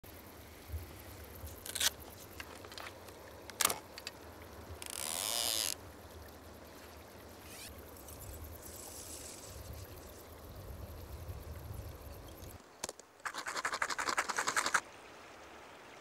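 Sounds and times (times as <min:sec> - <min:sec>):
faint steady background noise: 0:00.0 - 0:16.0
fishing line rustling hiss: 0:04.8 - 0:05.8, 0:06.6 - 0:10.3, 0:13.2 - 0:14.8.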